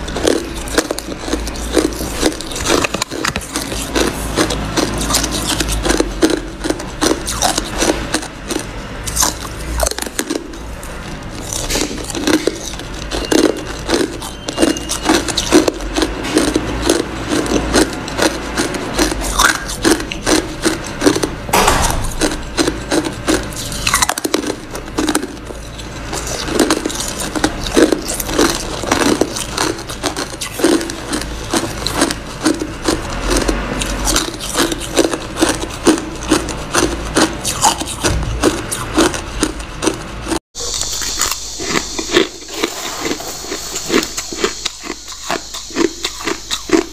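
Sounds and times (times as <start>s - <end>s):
person crunching ice: 0.0s - 10.6s.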